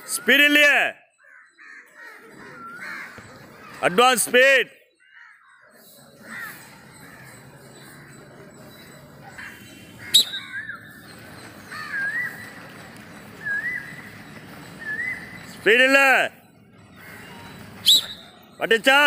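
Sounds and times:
outdoor background noise: 0.0s - 19.0s
bird wavy calls: 5.0s - 18.7s.

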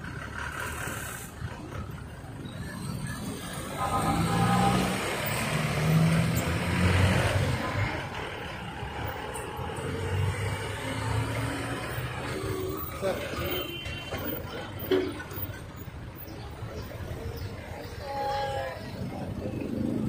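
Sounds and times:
light street traffic: 0.0s - 20.0s.

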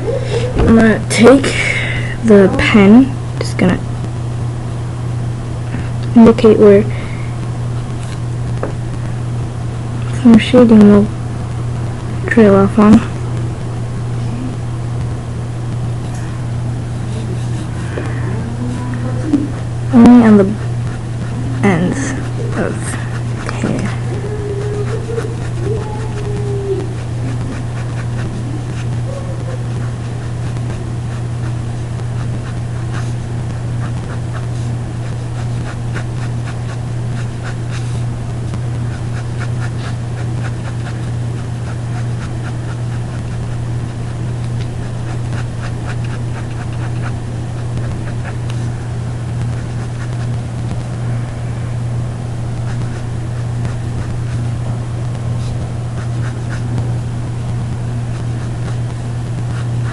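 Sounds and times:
low hum: 0.0s - 59.9s
pencil scratching on paper: 17.1s - 17.8s, 20.0s - 26.3s, 26.9s - 33.2s, 33.8s - 38.0s, 38.8s - 48.7s, 49.5s - 50.4s, 52.6s - 54.5s, 55.4s - 56.8s, 58.0s - 59.9s.

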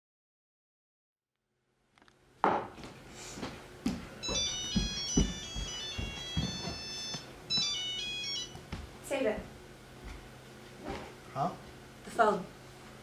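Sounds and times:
footsteps on stage floor: 2.8s - 7.8s, 8.4s - 9.0s, 10.0s - 10.3s
phone ringtone melody: 4.2s - 8.6s.

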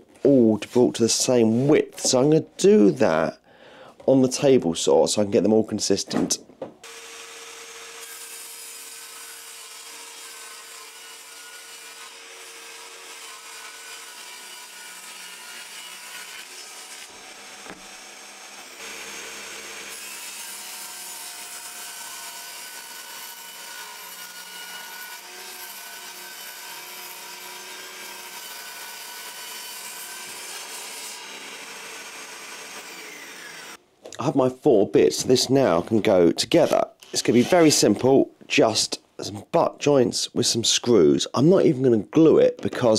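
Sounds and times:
table saw cutting board: 6.8s - 33.8s, 36.6s - 38.0s.

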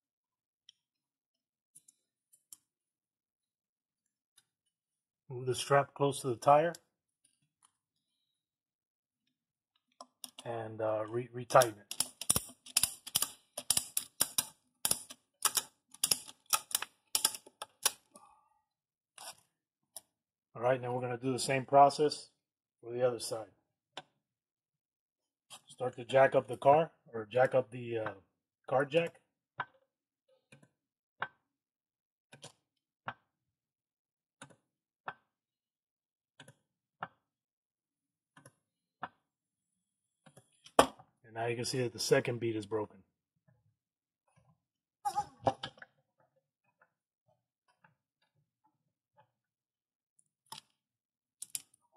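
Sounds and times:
ratchet strap clicking: 11.6s - 18.0s.

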